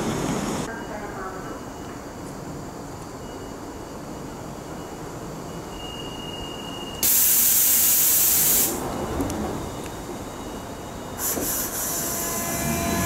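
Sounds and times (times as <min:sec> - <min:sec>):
train rumbling: 0:00.0 - 0:03.0, 0:03.7 - 0:13.0
compressed air hiss: 0:07.0 - 0:08.8, 0:11.2 - 0:12.2.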